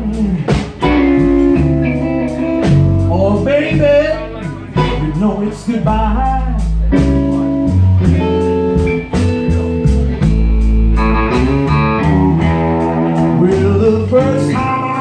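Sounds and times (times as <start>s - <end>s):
electric guitar: 0.0s - 15.0s
live blues band playing: 0.0s - 15.0s.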